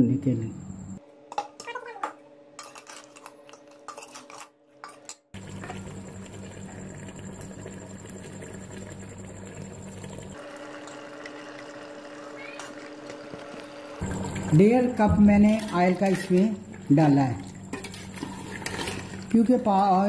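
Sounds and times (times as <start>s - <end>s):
ladle scraping metal pot: 2.6s - 5.0s, 14.7s - 16.9s, 17.6s - 19.4s
oil hissing in pot: 5.4s - 19.4s.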